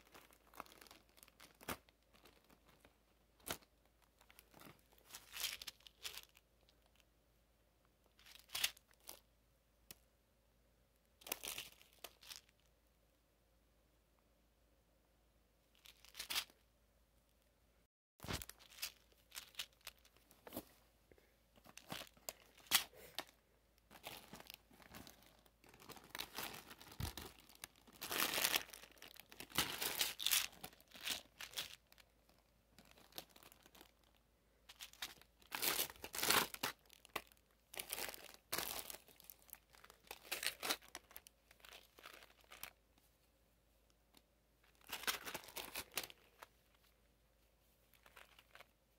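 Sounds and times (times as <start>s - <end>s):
plastic wrappers crinkling: 0.0s - 7.0s, 18.2s - 20.7s, 21.6s - 42.8s, 44.6s - 46.8s.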